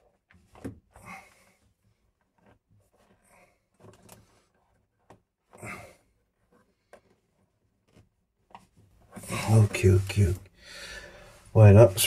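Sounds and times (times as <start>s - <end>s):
metal and plastic rubbing: 1.8s - 10.5s.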